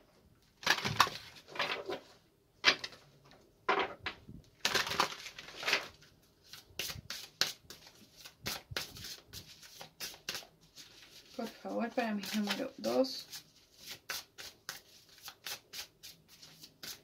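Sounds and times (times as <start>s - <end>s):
cards being shuffled: 4.6s - 17.0s.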